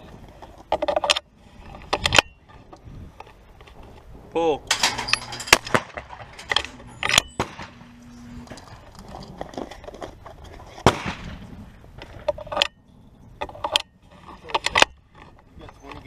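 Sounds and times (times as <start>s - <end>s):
shotgun shots: 5.5s - 6.2s, 7.1s - 7.9s, 10.8s - 11.4s.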